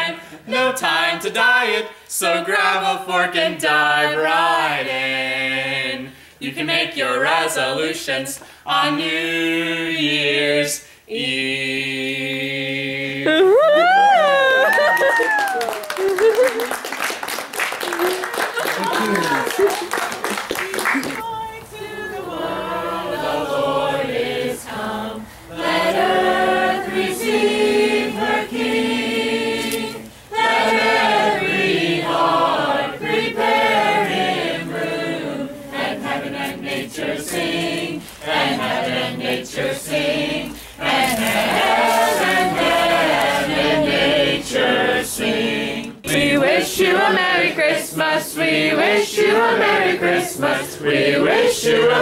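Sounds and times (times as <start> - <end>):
group singing unaccompanied: 0.0 - 13.4, 21.2 - 52.0
singers breathing: 6.1 - 6.4, 8.4 - 8.7, 25.2 - 25.6, 30.1 - 30.3, 40.5 - 40.8.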